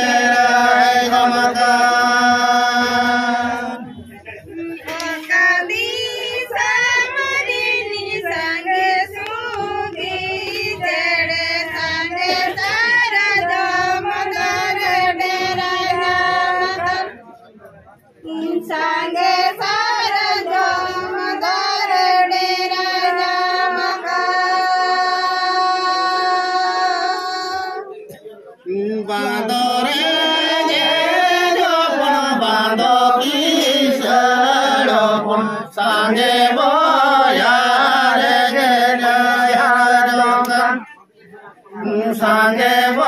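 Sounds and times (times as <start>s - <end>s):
group of people singing: 0.0s - 17.3s, 18.2s - 43.0s.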